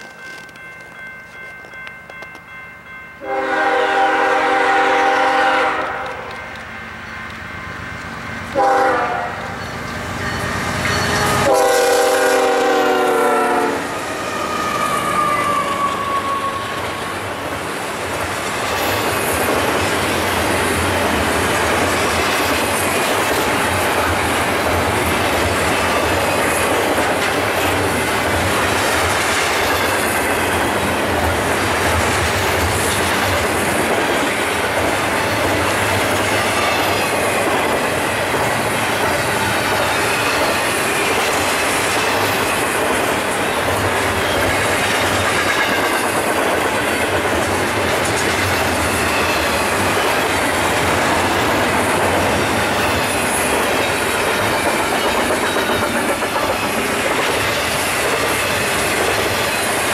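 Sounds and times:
train wheels rumbling on rails: 0.0s - 59.9s
locomotive air horn blasts: 3.2s - 6.4s, 8.6s - 9.6s, 11.2s - 14.0s.

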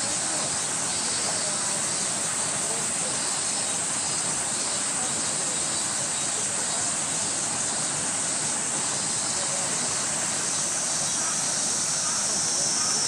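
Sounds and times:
high-pitched outdoor hiss: 0.0s - 13.0s.

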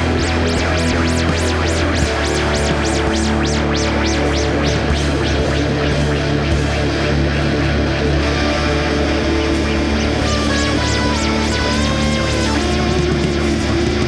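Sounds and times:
drums: 0.0s - 14.0s
electric guitar: 0.0s - 14.0s.

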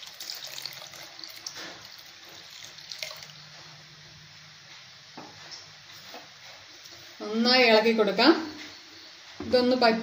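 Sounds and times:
liquid trickling and splashing: 0.0s - 3.5s.

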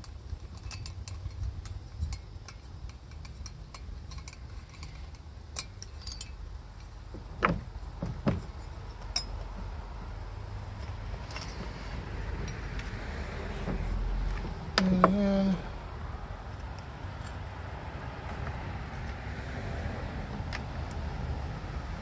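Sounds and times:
hand tools clicking and tapping: 0.0s - 9.7s.

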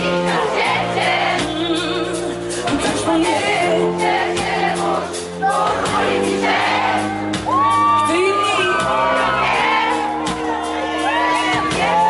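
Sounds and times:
live pop band playing: 0.0s - 12.0s
woman singing: 1.3s - 5.8s.

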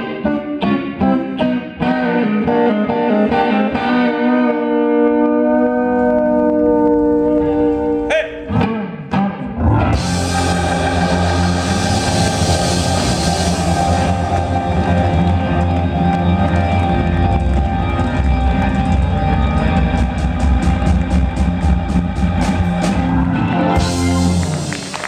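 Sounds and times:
rock band playing loud: 0.0s - 25.0s
sliding guitar notes: 0.0s - 25.0s
electric guitar chord ringing: 9.4s - 21.1s
crashing cymbals and drums: 10.0s - 14.6s.

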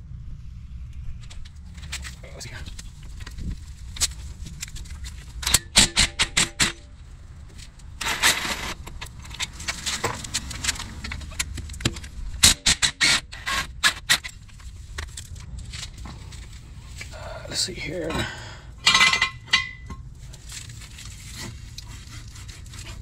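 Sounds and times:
impact wrench bursts: 12.4s - 14.3s.

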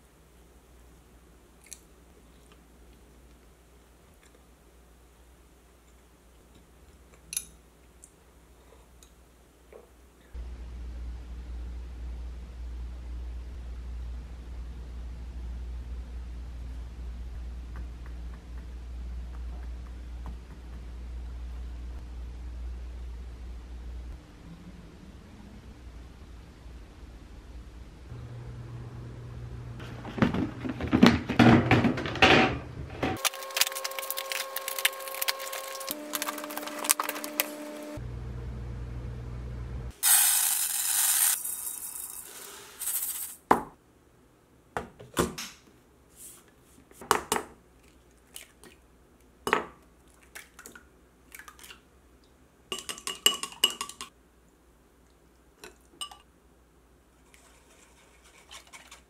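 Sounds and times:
steady hiss: 39.9s - 43.4s
dishes knocking and clinking: 52.7s - 54.1s.

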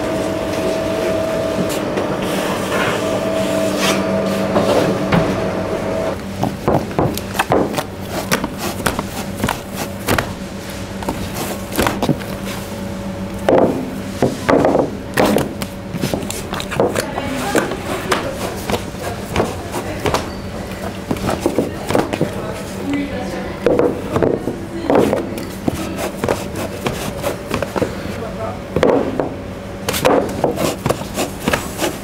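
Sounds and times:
bakery machinery hum: 0.0s - 32.0s
hands slapping bread dough: 6.4s - 10.4s, 11.0s - 12.6s, 14.2s - 22.4s, 24.9s - 28.0s, 29.8s - 32.0s.

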